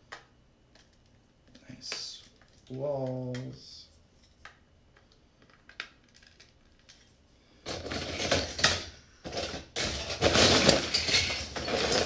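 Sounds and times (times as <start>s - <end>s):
plastic bricks clattering: 7.7s - 12.0s.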